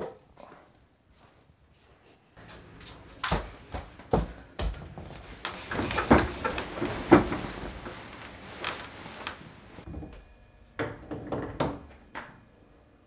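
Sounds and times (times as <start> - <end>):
rustling: 5.1 - 9.9.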